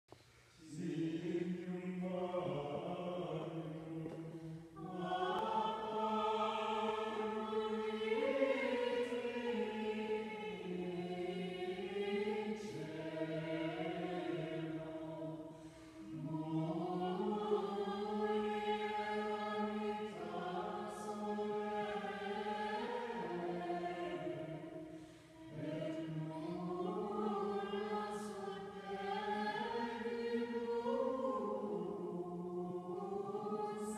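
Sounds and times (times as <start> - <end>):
choir singing a slow chant: 0.6 - 33.9.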